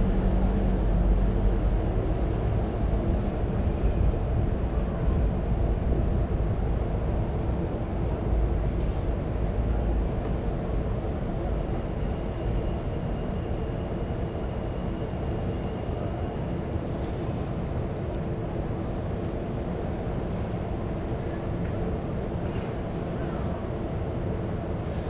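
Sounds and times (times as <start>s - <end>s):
passing vehicles rumble: 0.0s - 11.7s.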